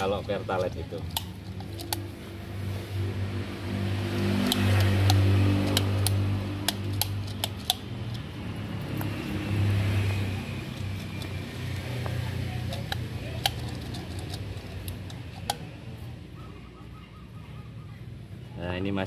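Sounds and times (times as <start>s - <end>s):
sharp metallic clicks: 0.0s - 2.3s, 3.9s - 16.0s.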